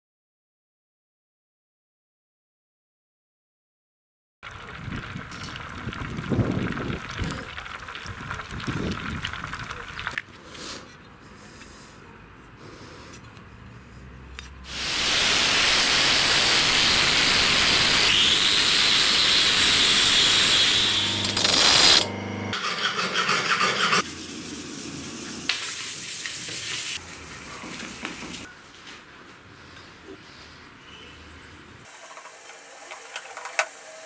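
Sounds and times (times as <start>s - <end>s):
knife on bench grinder: 14.7s - 24.1s.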